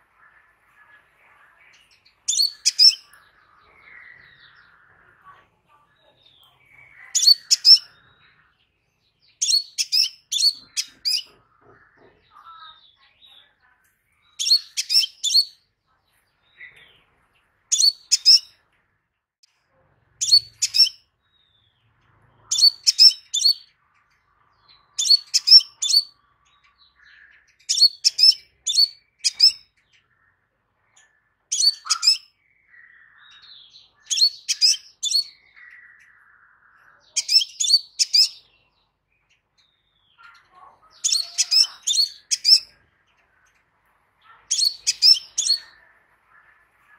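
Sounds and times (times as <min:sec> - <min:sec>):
soft bird twitters: 0:00.0 - 0:18.8, 0:19.4 - 0:46.9
bird chirping: 0:00.0 - 0:46.9.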